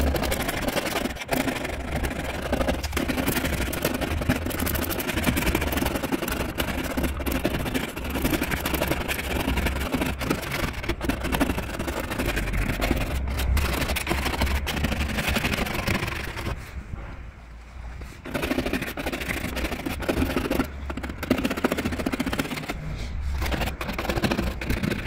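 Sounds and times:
plastic scraper scraping paint: 0.0s - 17.0s, 17.9s - 25.0s.

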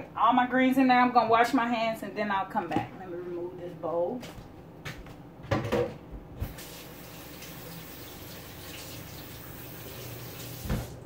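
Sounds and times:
faucet running into sink: 6.4s - 11.0s.

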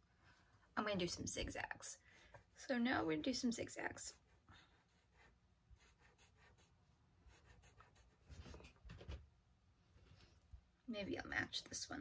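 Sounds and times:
marker scratching on paper: 3.8s - 8.7s.

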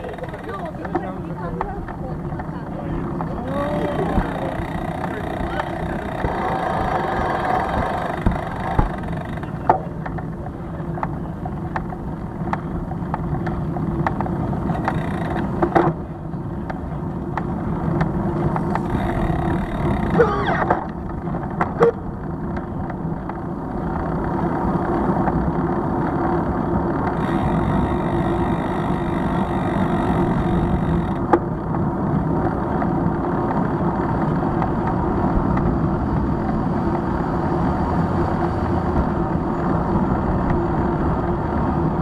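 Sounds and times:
street traffic: 0.0s - 42.0s
sharp clicks and knocks: 7.7s - 10.3s, 11.0s - 16.0s.

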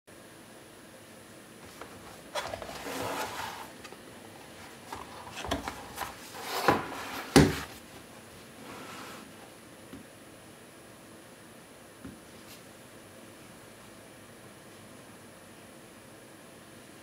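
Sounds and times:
cardboard lid sliding off: 1.6s - 7.8s.

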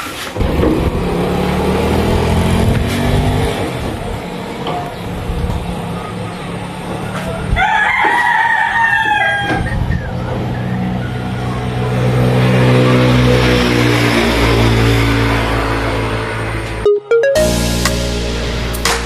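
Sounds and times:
rooster crowing: 7.3s - 9.7s
steady low drone: 17.4s - 19.0s.

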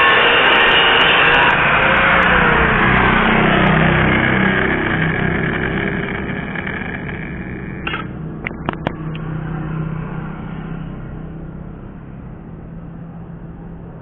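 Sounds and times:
angle grinder spinning down: 0.0s - 8.2s.

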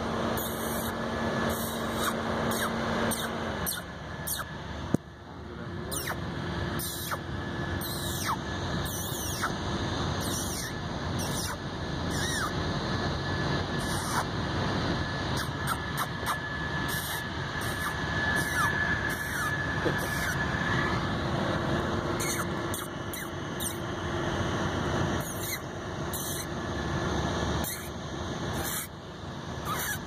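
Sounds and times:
steady background noise: 0.0s - 30.0s
ground squirrel squeaking: 0.4s - 4.6s, 5.9s - 6.2s, 6.8s - 9.6s, 10.2s - 12.6s, 13.7s - 14.3s, 15.3s - 20.5s, 22.2s - 23.9s, 25.2s - 26.5s, 27.6s - 28.0s, 28.6s - 28.9s, 29.6s - 30.0s.

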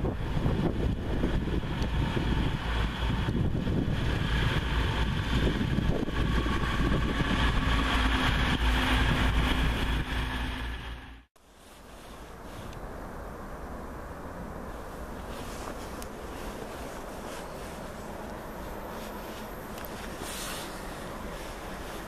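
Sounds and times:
diesel train passing: 0.0s - 11.3s, 12.2s - 22.0s.

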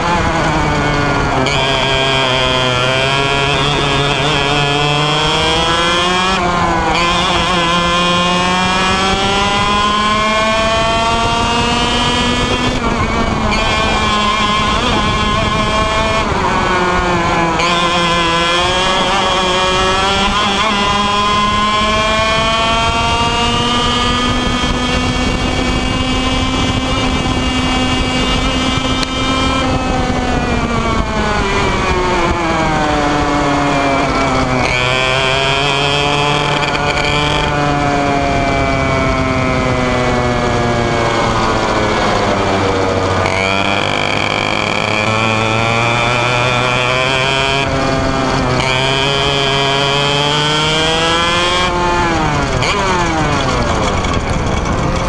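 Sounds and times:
two-stroke kart engine running: 0.0s - 55.0s.

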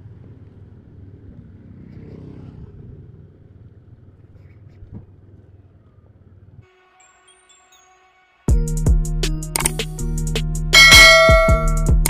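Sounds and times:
motorcycle engine running: 0.0s - 6.6s, 10.8s - 12.0s
sharp knock: 10.8s - 11.8s.

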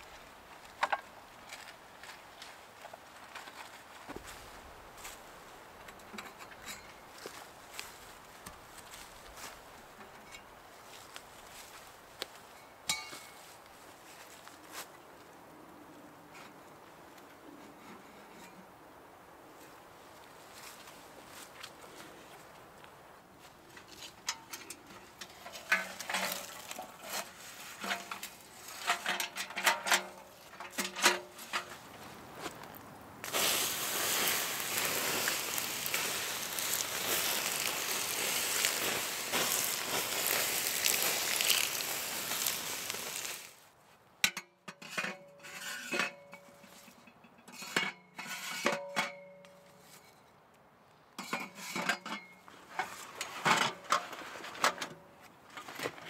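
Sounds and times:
metal stove clanking: 24.2s - 28.2s, 28.8s - 31.7s
hot ash hissing: 33.2s - 43.6s.

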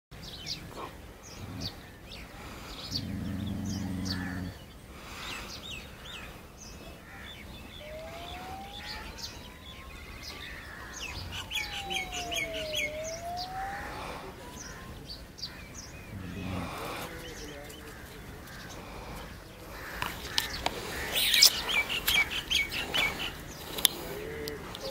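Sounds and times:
small birds chirping: 0.2s - 24.9s
smooth rising and falling tone: 11.5s - 14.0s.

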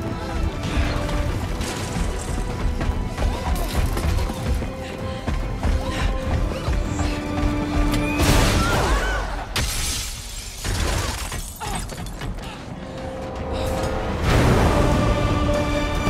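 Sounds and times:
dramatic orchestral score: 0.0s - 9.7s, 12.2s - 16.0s.

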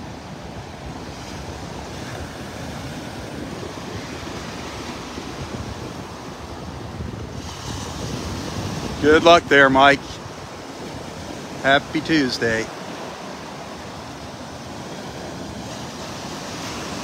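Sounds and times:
wind rumbling on microphone: 0.0s - 11.8s
small waves breaking on sand: 0.0s - 17.0s.

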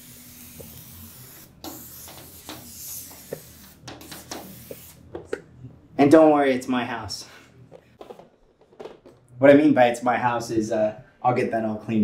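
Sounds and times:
compressed air blow gun hissing: 0.0s - 5.0s.

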